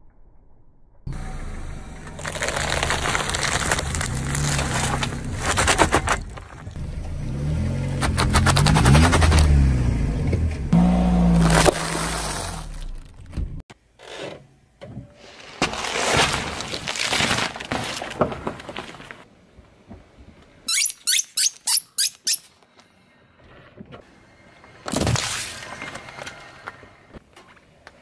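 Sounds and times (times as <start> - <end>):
things crunching under a tyre: 1.1 - 9.8, 10.4 - 14.2, 15.2 - 19.3.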